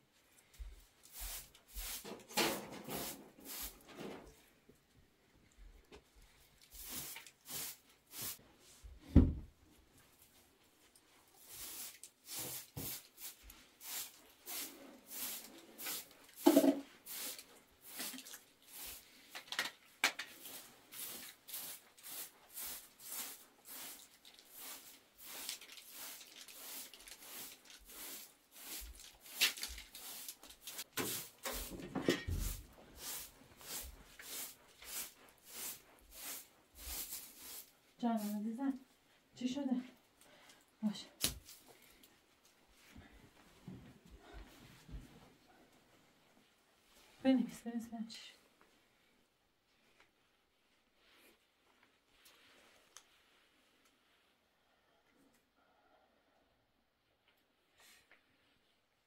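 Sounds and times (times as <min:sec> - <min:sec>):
broom sweeping a rug: 0:00.4 - 0:04.4, 0:06.4 - 0:09.2, 0:10.0 - 0:19.3, 0:20.3 - 0:38.9, 0:49.7 - 0:54.4
knocks and thumps: 0:09.1 - 0:09.5.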